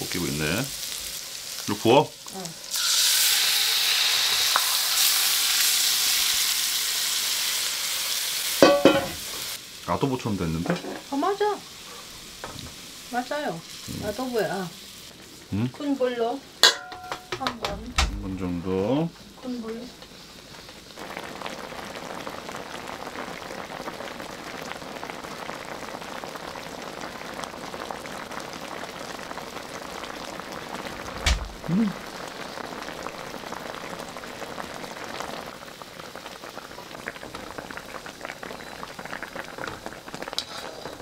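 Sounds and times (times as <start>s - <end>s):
sauce boiling and bubbling in wok: 0.0s - 41.0s
sharp thump: 31.2s - 31.6s.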